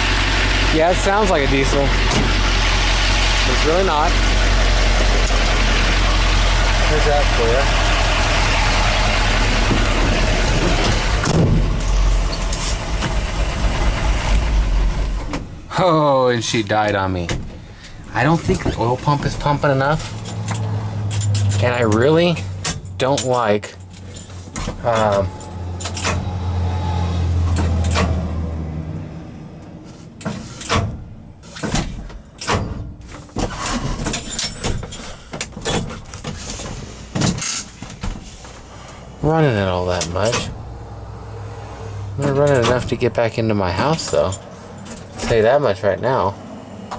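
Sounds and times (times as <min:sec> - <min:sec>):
loud engine running: 0:00.0 - 0:15.8.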